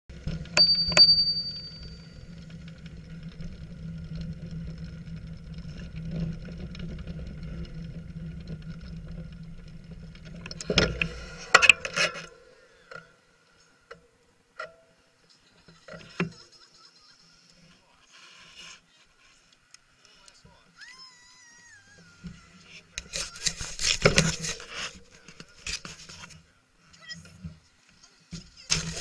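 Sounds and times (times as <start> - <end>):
bicycle rolling on concrete: 0.1 - 26.6, 27.3 - 29.0
bicycle bell ringing: 0.6 - 2.4.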